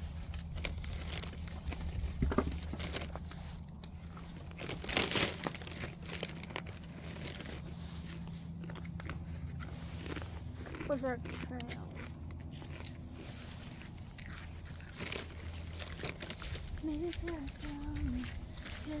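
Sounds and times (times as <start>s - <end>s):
plastic tarp crinkling: 0.0s - 8.1s, 14.9s - 19.0s.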